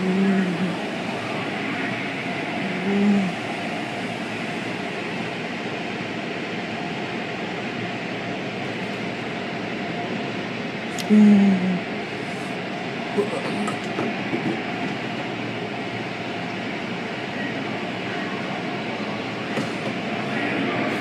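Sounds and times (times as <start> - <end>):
car wash water jets and brushes: 0.0 - 2.7.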